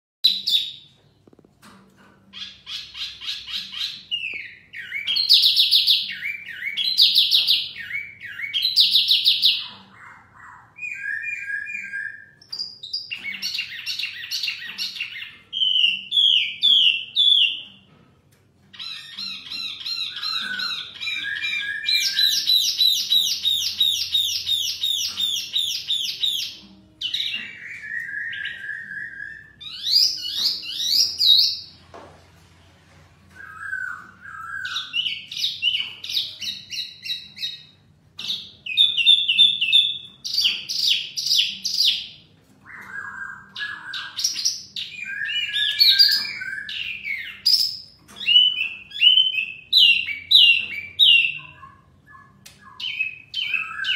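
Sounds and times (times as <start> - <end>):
songbirds singing: 2.2 - 31.9, 33.3 - 53.9.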